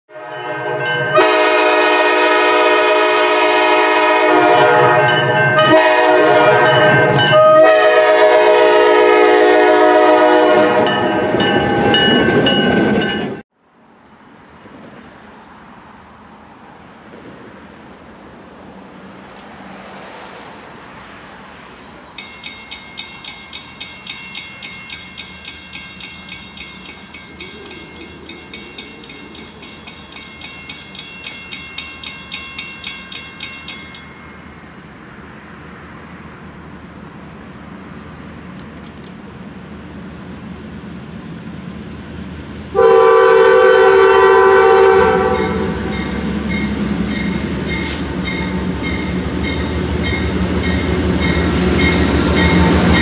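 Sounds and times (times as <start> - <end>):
train horn blasts: 0.1 - 12.0, 42.7 - 46.4, 51.8 - 53.0
train passing rumble: 0.1 - 53.0
crossing bell ringing: 0.2 - 2.7, 4.3 - 9.1, 9.7 - 13.4, 22.0 - 34.8, 44.1 - 53.0.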